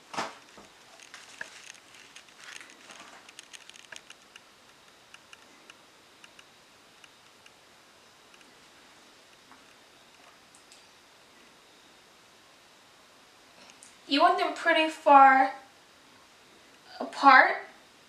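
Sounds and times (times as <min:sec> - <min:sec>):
plastic piping bag crinkling: 0:00.0 - 0:04.4.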